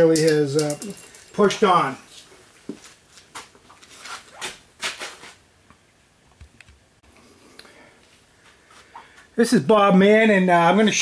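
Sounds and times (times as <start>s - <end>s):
handling scuffs and rustles: 0.2s - 5.4s.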